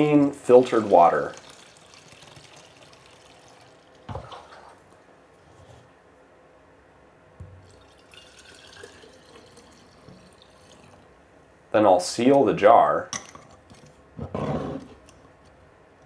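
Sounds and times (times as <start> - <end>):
water pouring into glass jar: 0.4 - 4.8, 7.6 - 11.0.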